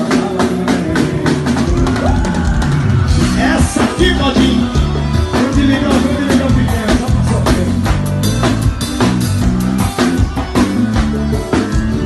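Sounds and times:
bass: 0:00.0 - 0:12.0
drum kit beat: 0:00.0 - 0:12.0
keyboard: 0:00.0 - 0:12.0.

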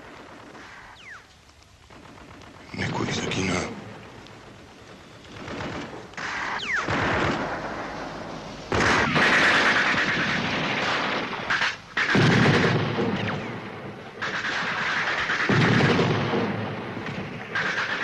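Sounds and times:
rifle shots: 0:05.2 - 0:18.0
automatic gunfire bursts: 0:05.3 - 0:07.6.

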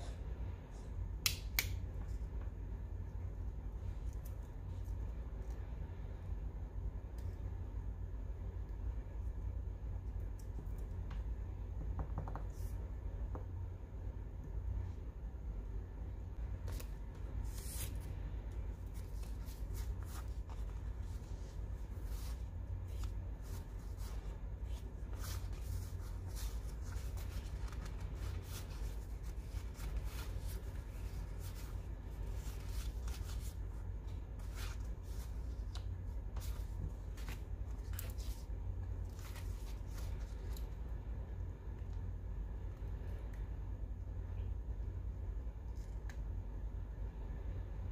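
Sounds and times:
steady low hum: 0:00.0 - 0:47.9
paper rustling: 0:16.6 - 0:40.7.

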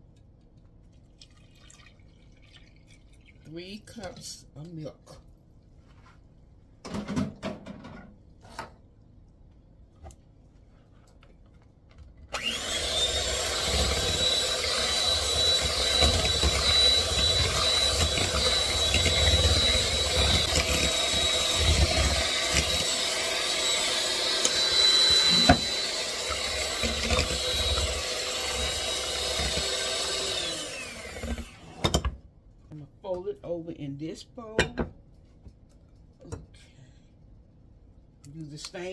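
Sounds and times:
electric hand mixer whining: 0:12.3 - 0:32.0.

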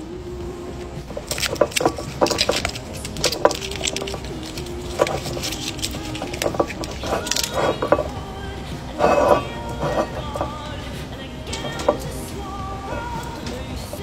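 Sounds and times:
foil crinkling and tearing: 0:01.1 - 0:08.2.

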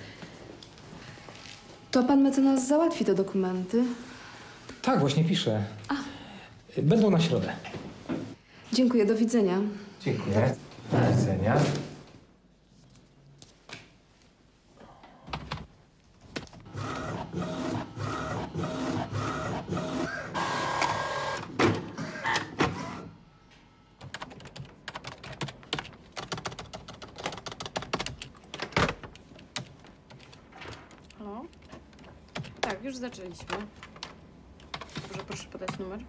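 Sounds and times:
inkjet printer whirring: 0:16.7 - 0:23.2.

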